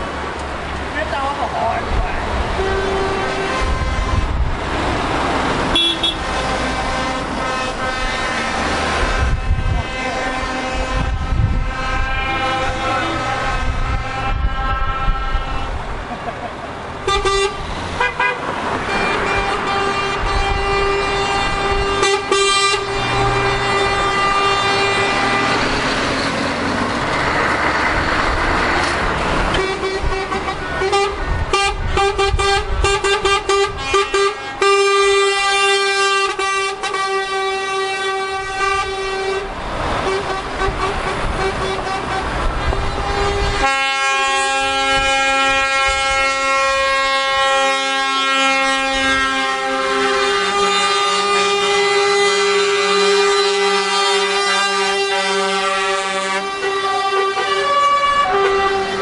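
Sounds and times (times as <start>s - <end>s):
passing trucks engine and tyre noise: 0.0s - 59.0s
truck air horns blasting: 2.4s - 15.9s, 17.0s - 59.0s
multi-note chord horn: 43.2s - 59.0s.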